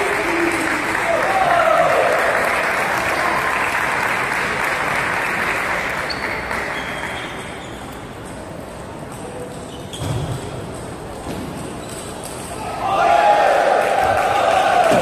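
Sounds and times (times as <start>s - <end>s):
spectators applauding: 0.0s - 7.2s, 13.3s - 15.0s.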